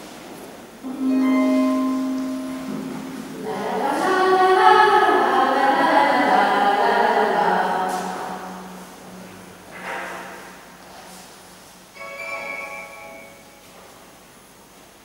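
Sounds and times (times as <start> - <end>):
voices singing sustained notes: 0.8 - 9.3
single held note: 0.9 - 3.6.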